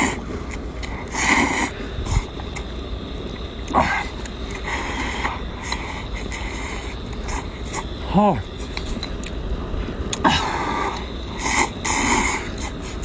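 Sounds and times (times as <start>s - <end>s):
man slurping noodles: 0.8s - 2.3s, 10.1s - 13.0s.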